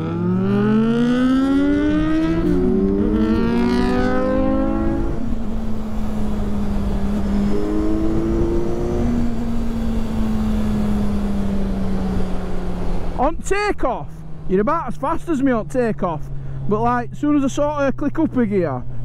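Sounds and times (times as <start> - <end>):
motorcycle engine revving: 0.0 - 13.3
road rumble: 0.0 - 19.0.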